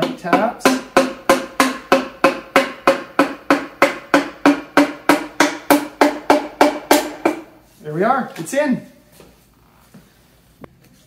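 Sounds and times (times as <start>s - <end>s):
mallet tapping on metal piston: 0.0s - 7.5s.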